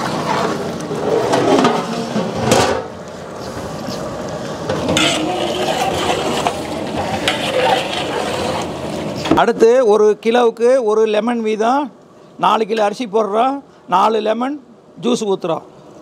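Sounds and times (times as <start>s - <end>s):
spatula stirring in pot: 4.8s - 9.2s
ladle swirling water in pot: 4.9s - 9.2s.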